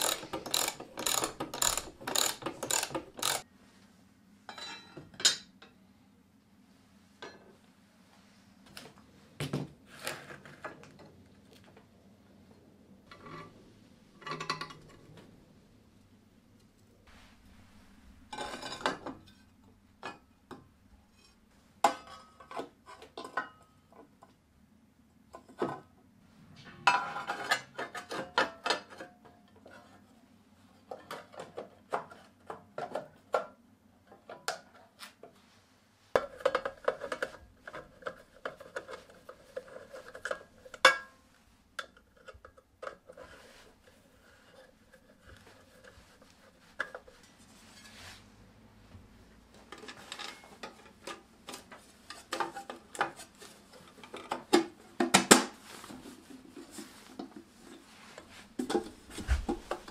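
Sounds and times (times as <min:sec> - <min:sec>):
metal fittings clinking and scraping: 0:00.0 - 0:03.4.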